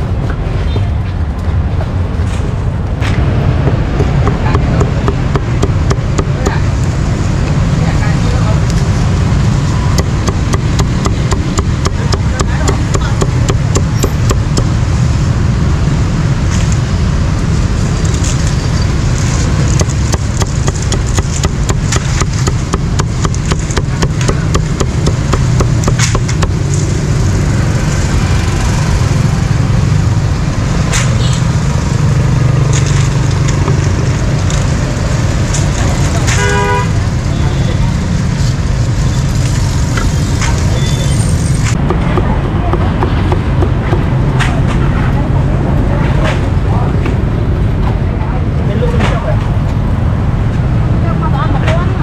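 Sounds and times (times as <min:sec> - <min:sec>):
street traffic rumble: 0:00.0 - 0:52.0
cleaver chopping on block: 0:03.6 - 0:06.6, 0:10.0 - 0:14.7, 0:19.7 - 0:26.6.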